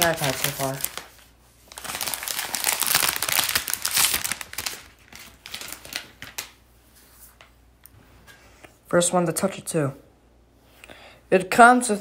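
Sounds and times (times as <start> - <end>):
plastic packaging crinkling: 0.0 - 6.6.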